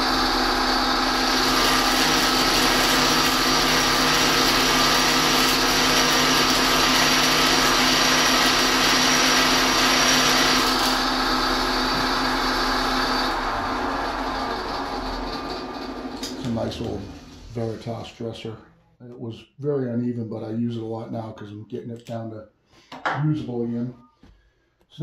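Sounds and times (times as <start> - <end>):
bench grinder motor hum: 0.0 - 17.6
grinder spinning down: 0.0 - 17.8.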